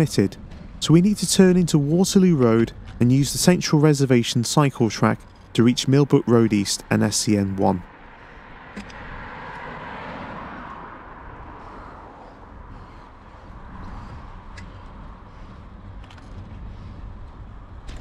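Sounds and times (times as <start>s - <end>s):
car driving past: 7.8s - 16.0s
bicycle riding on rough tarmac: 9.4s - 18.0s.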